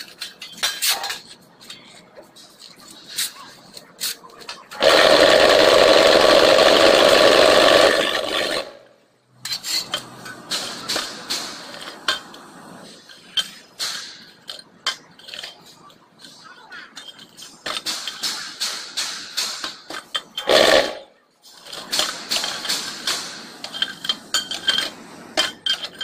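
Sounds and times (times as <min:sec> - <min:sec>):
vibration motor running: 0:04.8 - 0:08.7.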